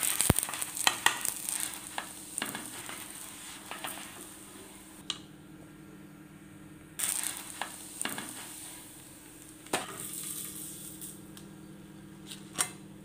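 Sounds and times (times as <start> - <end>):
food sizzling on griddle: 0.0 - 5.0, 7.0 - 11.2
steady low hum: 0.0 - 13.0.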